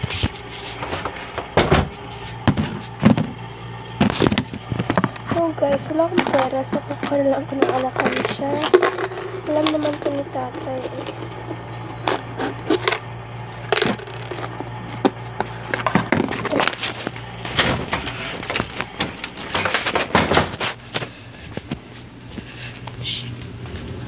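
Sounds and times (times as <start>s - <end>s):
steady low hum: 0.0s - 24.0s
coins rattling in plastic bank: 6.2s - 11.4s.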